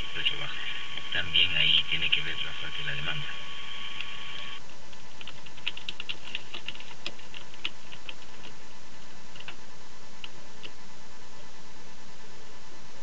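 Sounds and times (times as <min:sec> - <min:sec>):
steady background hiss: 0:00.0 - 0:13.0
computer keyboard typing: 0:04.9 - 0:08.6, 0:09.3 - 0:09.6.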